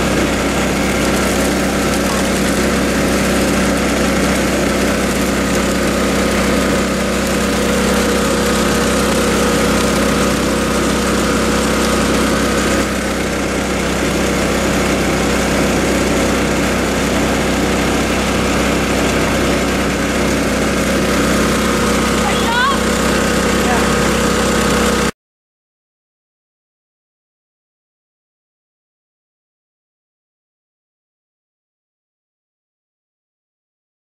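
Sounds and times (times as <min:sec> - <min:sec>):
water rushing down sluice box: 0:00.0 - 0:25.1
water pump engine running: 0:00.0 - 0:25.2.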